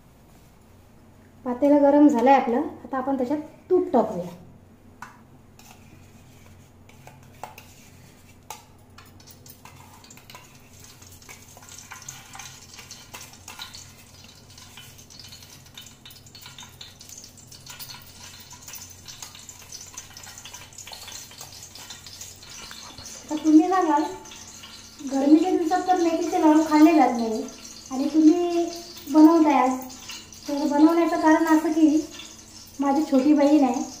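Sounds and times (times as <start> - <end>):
ghee crackling in pan: 5.6 - 34.0
metal spoon scraping container: 17.6 - 34.0.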